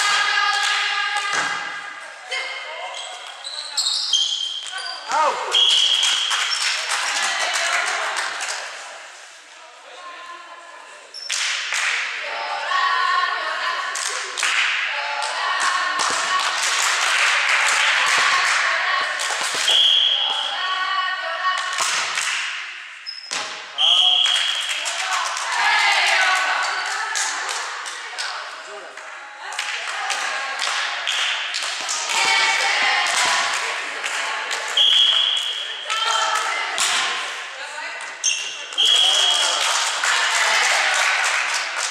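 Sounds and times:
girls calling out and chanting: 0:00.0 - 0:03.0, 0:12.0 - 0:16.6, 0:17.4 - 0:19.2, 0:20.2 - 0:22.2, 0:24.8 - 0:31.0, 0:32.0 - 0:34.8, 0:35.6 - 0:38.2
referee's whistle: 0:03.4 - 0:06.6, 0:19.7 - 0:20.6, 0:23.0 - 0:24.8, 0:34.8 - 0:35.9, 0:38.2 - 0:39.6
hand clapping: 0:05.9 - 0:08.7, 0:11.3 - 0:12.2, 0:14.0 - 0:14.8, 0:15.6 - 0:19.8, 0:21.6 - 0:22.7, 0:29.0 - 0:37.2, 0:38.8 - 0:41.9.

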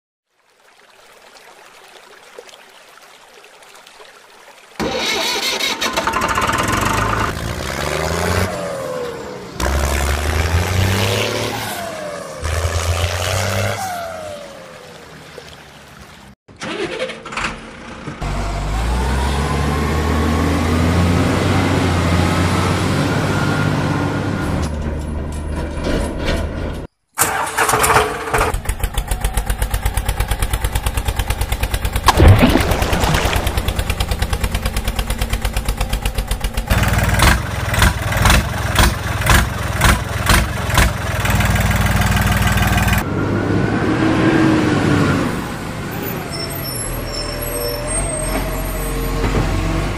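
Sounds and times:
truck engine running: 0:04.8 - 0:07.6, 0:28.6 - 0:43.0
tractor engine chugging: 0:33.6 - 0:43.0.

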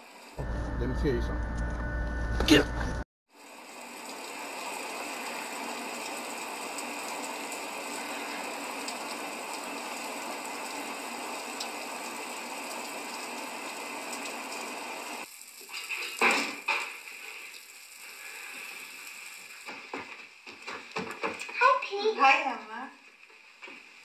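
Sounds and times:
heavy rain hissing: 0:03.3 - 0:20.5.

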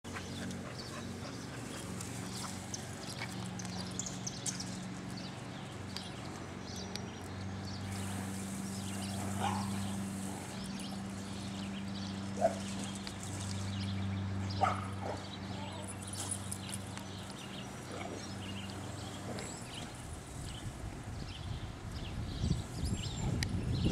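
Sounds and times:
dogs scuffling on grass: 0:00.1 - 0:21.1
dog barking: 0:09.4 - 0:09.7, 0:14.6 - 0:15.2.

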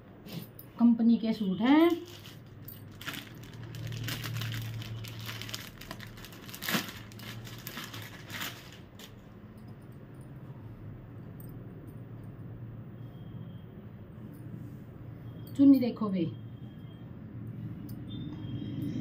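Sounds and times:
cloth rustling: 0:01.9 - 0:09.3
plastic packet crinkling: 0:02.0 - 0:09.2.

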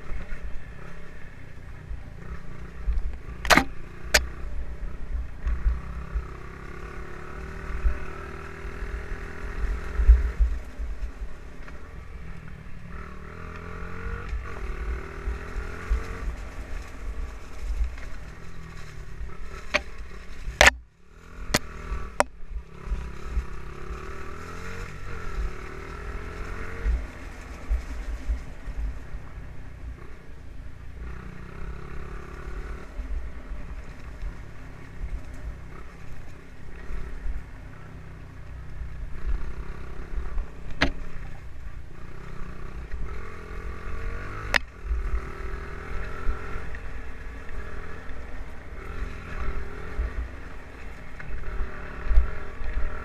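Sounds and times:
motorbike engine revving: 0:02.1 - 0:11.1, 0:11.7 - 0:29.0, 0:31.0 - 0:53.0.

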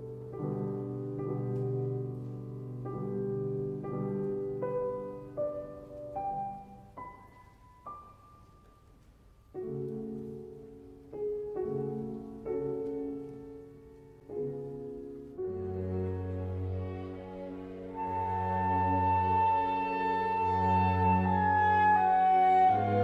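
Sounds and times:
slow gentle piano music: 0:00.0 - 0:23.0.

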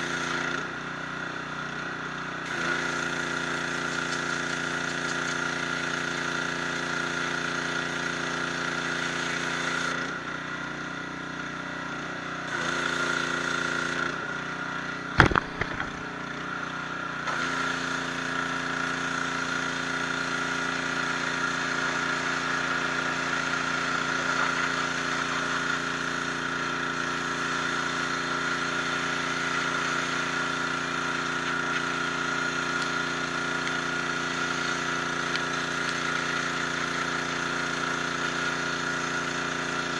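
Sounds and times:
pressure washer spraying stone: 0:00.0 - 0:39.9
sharp knock: 0:15.2 - 0:16.0.

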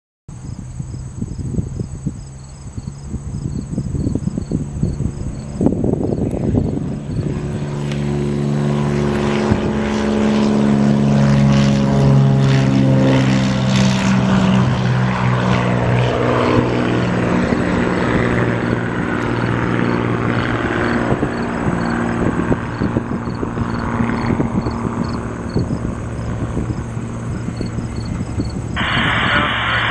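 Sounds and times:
propeller plane engine drone: 0:00.3 - 0:29.9.

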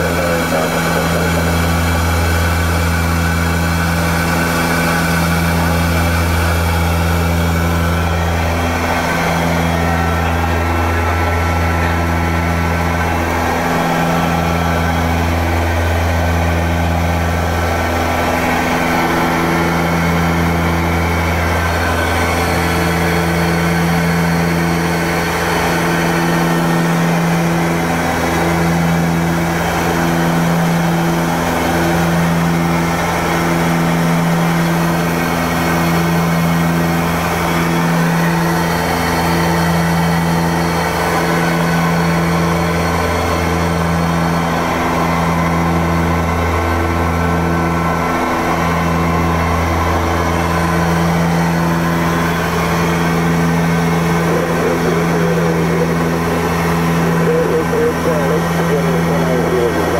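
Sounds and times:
turboprop engines droning: 0:00.0 - 0:59.9.

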